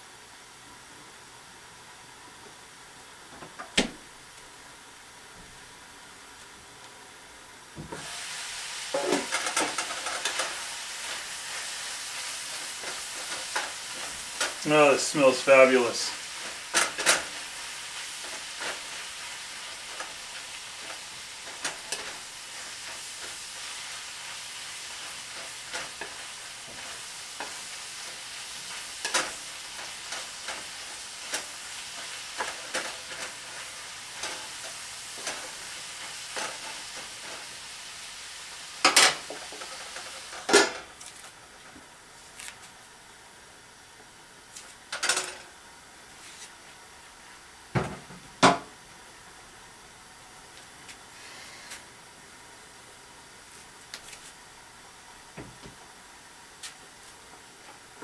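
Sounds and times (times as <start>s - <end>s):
food sizzling in a skillet: 7.7s - 41.4s, 51.0s - 54.5s
metal pans clanking: 9.0s - 10.5s, 38.8s - 39.8s.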